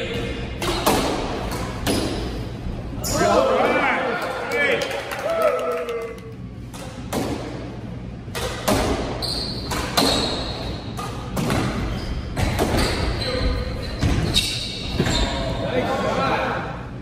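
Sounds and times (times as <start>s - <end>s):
squash ball knocking off racquets and walls: 0.6s - 2.4s, 6.7s - 7.7s, 8.3s - 13.1s.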